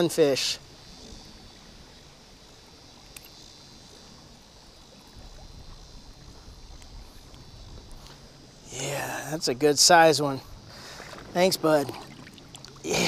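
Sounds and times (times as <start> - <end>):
low wind rumble: 0.0 - 13.0
small click: 3.1 - 3.4
creek running over gravel: 4.6 - 13.0.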